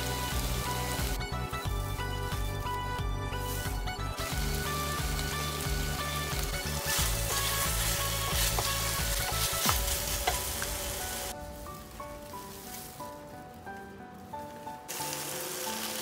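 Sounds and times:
chicken sizzling in oil: 0.0 - 11.4, 14.9 - 16.0
background music: 0.0 - 16.0.

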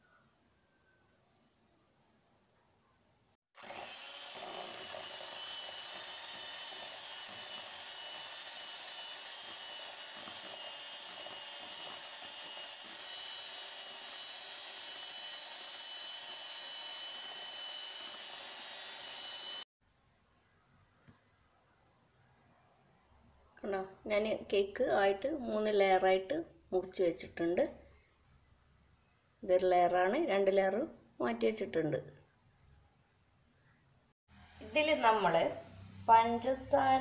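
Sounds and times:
beaters whipping cream in bowl: 3.6 - 19.6
electric hand mixer whining: 3.6 - 19.7.

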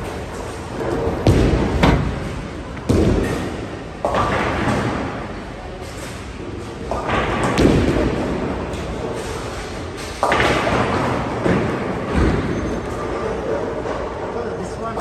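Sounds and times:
bowling balls thudding on lanes: 0.0 - 13.2
bowling pins crashing: 0.2 - 5.2.

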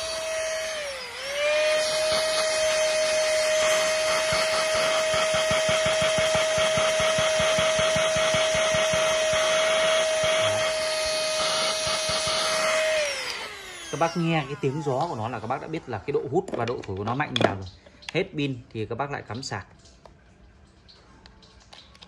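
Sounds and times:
handheld vacuum whining: 0.0 - 16.6.

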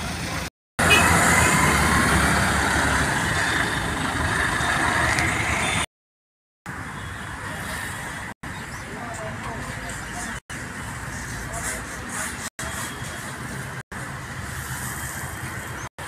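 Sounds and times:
heavy vehicle engine running: 0.0 - 5.8.

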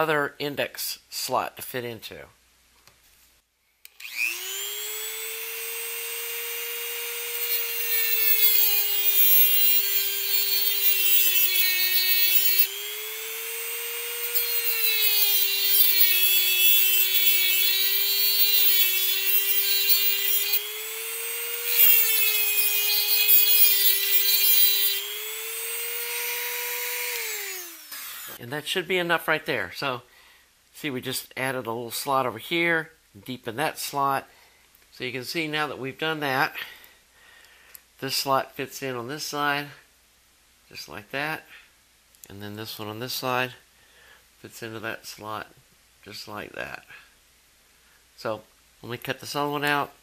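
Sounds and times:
rotary tool whining: 3.9 - 28.4
cut-off wheel scraping metal: 6.2 - 28.4.

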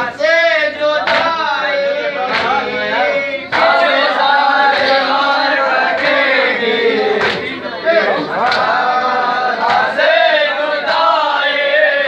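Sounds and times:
men chanting together: 0.0 - 12.0
hand slaps on chest: 9.7 - 9.9.

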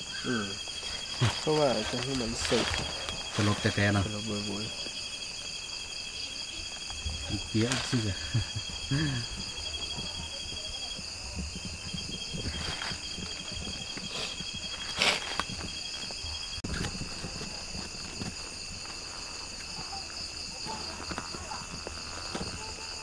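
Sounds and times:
crickets trilling: 0.0 - 23.0
rustles and scrapes: 0.7 - 4.0, 9.7 - 23.0.

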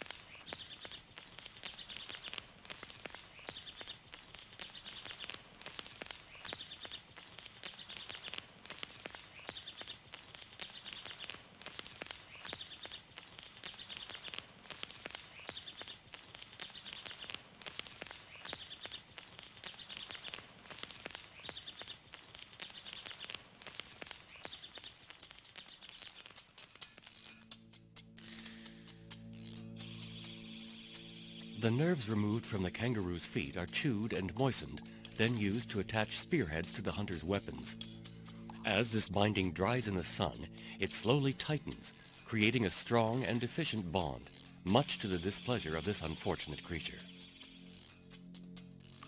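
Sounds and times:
faint clicks: 0.0 - 31.6.

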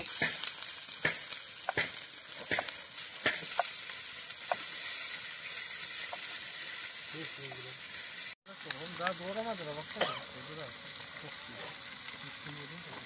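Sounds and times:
sharp clicks and pops: 0.0 - 4.8
meat sizzling in a pan: 0.0 - 13.0
spatula stirring meat: 0.1 - 9.7.

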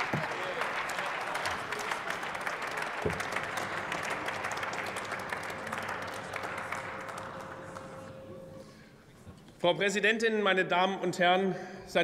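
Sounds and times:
crowd applause: 0.0 - 8.8.

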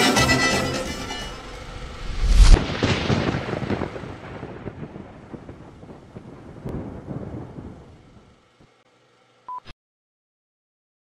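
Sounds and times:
rumbling thunder-like boom: 1.4 - 8.3
short steady beep: 9.5 - 9.7.

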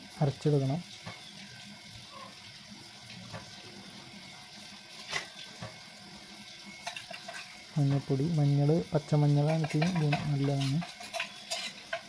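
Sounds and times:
leaves rustling in steel bowl: 6.7 - 12.0.

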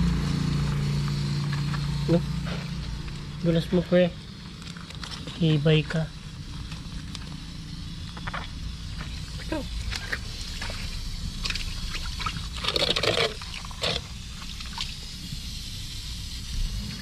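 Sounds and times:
water splashing and trickling: 10.0 - 15.0.

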